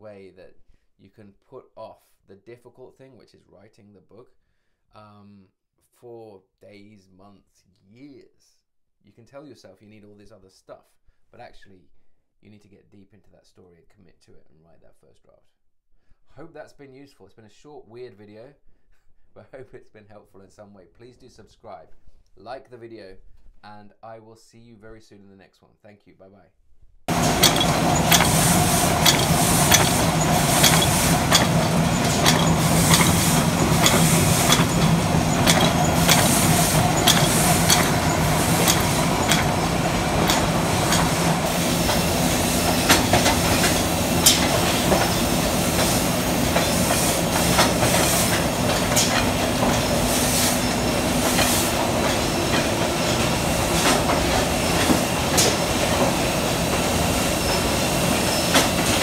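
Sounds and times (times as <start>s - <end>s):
fast clattering clicks: 27.1s - 42.0s, 42.7s - 45.2s
machinery humming: 27.1s - 59.0s.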